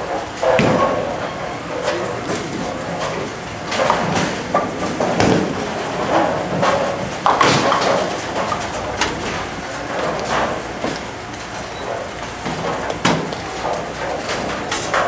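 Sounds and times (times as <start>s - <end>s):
bowling ball rolling: 0.0s - 11.2s
knocks and clatter echoing: 0.0s - 15.0s
bowling pins crashing: 0.4s - 11.0s.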